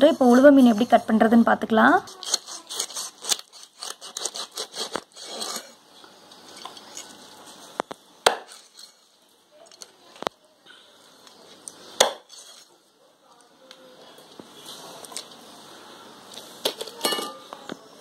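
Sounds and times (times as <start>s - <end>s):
knife scraping fish: 2.1s - 5.8s, 12.3s - 12.7s.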